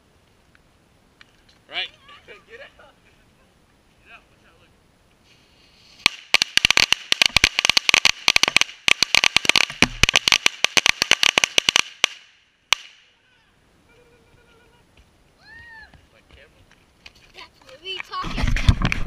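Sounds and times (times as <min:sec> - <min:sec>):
firecrackers banging: 0:05.3 - 0:13.1.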